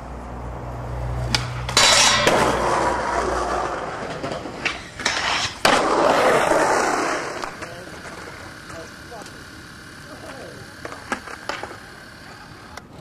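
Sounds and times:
skateboard scrape: 1.2s - 13.0s
skateboard knocks: 10.1s - 12.4s.

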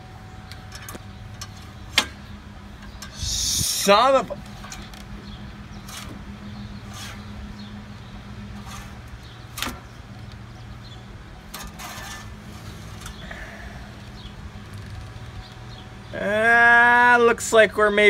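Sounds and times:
steady low hum: 0.0s - 16.9s.

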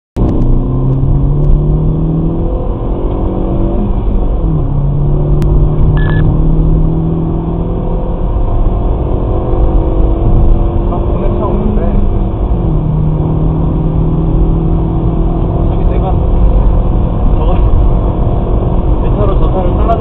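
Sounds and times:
car engine accelerating hard: 0.2s - 20.0s
road and wind noise: 0.2s - 20.0s
short beep: 5.9s - 6.3s.

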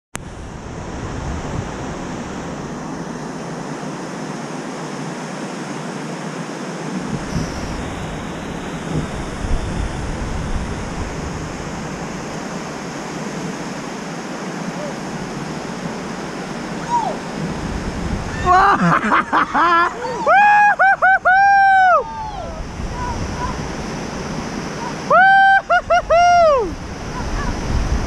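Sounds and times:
wind buffeting the microphone: 0.2s - 2.9s, 6.9s - 13.8s, 15.1s - 18.6s, 22.0s - 25.0s, 26.0s - 28.0s
whitewater rushing over rocks: 0.3s - 28.0s.

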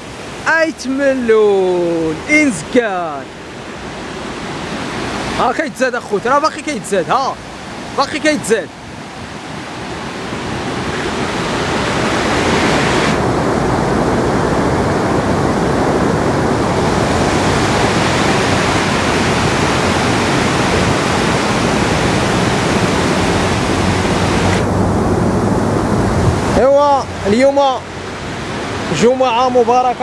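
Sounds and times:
floodwater rushing over stones: 0.0s - 30.0s.

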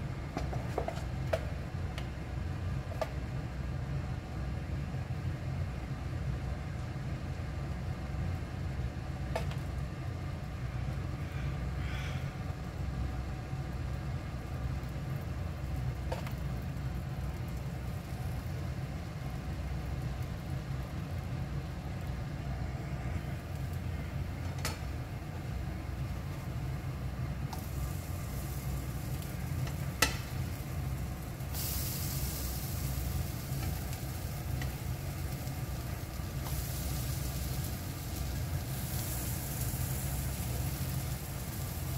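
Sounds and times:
low hum: 5.1s - 31.5s
batter sizzling in a pan: 8.2s - 41.9s.

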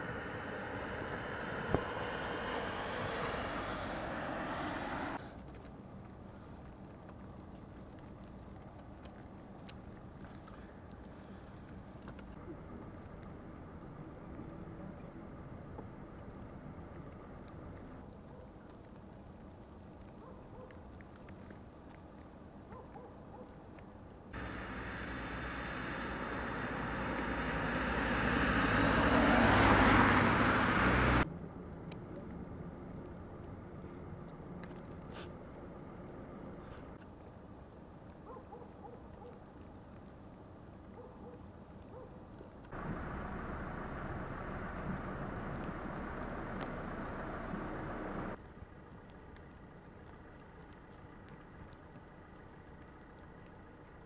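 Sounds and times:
low car engine: 0.0s - 5.2s, 24.4s - 37.0s, 42.7s - 54.0s
tyre hiss on wet road: 0.0s - 5.4s, 24.4s - 31.2s, 42.7s - 48.4s
low city rumble: 0.0s - 54.0s
faint light ticks: 5.3s - 13.4s, 14.3s - 24.2s, 31.8s - 35.7s, 44.7s - 47.2s, 48.4s - 54.0s.

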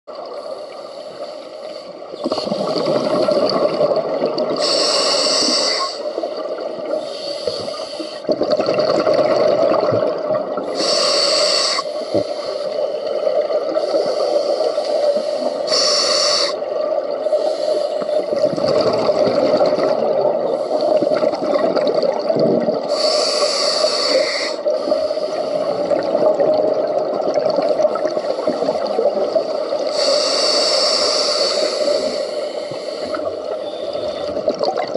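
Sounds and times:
regulator hissing inhalation: 4.6s - 6.4s, 7.0s - 8.3s, 10.7s - 13.0s, 13.8s - 16.6s, 17.2s - 18.3s, 22.9s - 25.8s, 28.2s - 34.3s
bubbling exhalations: 8.3s - 10.7s, 18.2s - 22.9s.

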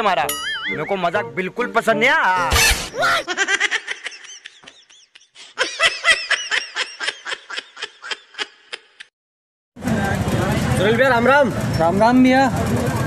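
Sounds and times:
person laughing: 2.9s - 9.1s.

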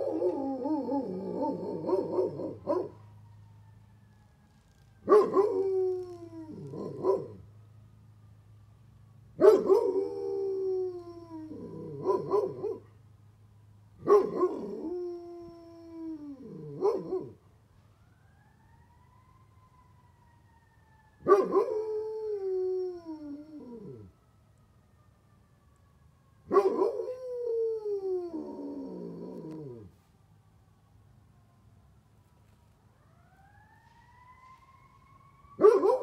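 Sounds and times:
dog howling: 0.0s - 3.0s, 5.1s - 7.4s
fire truck siren wailing: 0.0s - 36.0s.

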